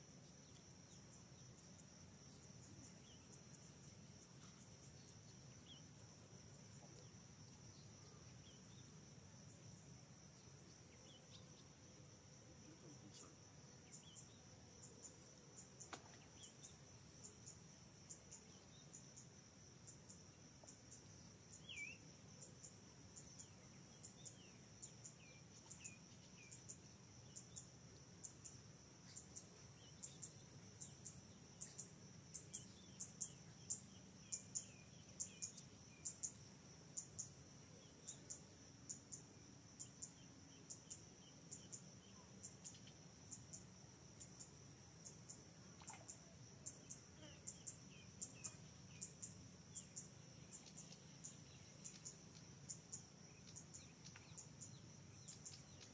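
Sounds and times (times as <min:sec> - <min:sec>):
pulsing insect trills: 0:00.2 - 0:55.9
insects trilling: 0:12.4 - 0:55.9.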